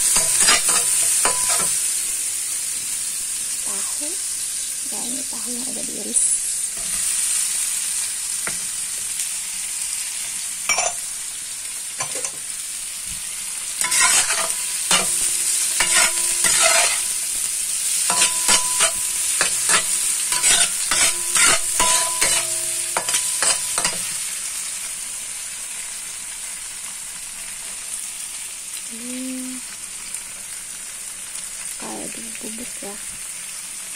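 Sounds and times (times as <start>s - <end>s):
spatula scraping wok: 0.0s - 2.0s, 13.7s - 24.4s
food sizzling in oil: 0.0s - 33.9s.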